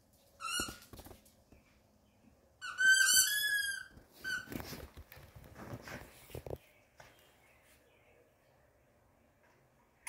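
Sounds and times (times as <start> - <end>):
dog toy squeaking: 0.4 - 0.9, 2.6 - 4.6.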